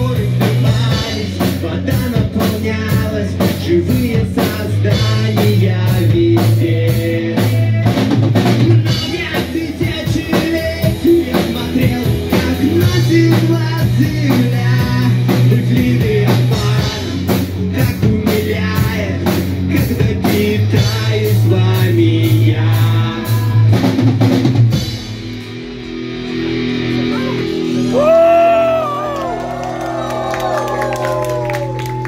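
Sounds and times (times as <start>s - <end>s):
drum kit fast beat: 0.0s - 25.6s
bass guitar: 0.0s - 32.0s
electric guitar: 0.0s - 32.0s.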